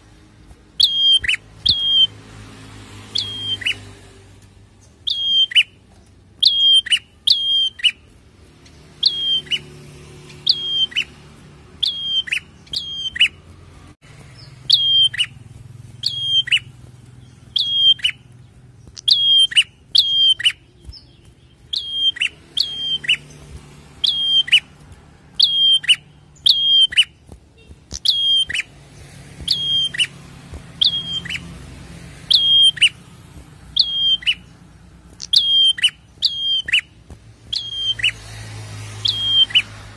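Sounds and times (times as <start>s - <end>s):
warbler chip notes: 0.8s - 2.1s, 5.1s - 5.8s, 6.4s - 8.0s, 8.7s - 13.5s, 14.3s - 23.4s, 24.0s - 24.7s, 29.5s - 30.2s, 32.3s - 33.0s, 33.7s - 34.5s, 35.2s - 36.9s.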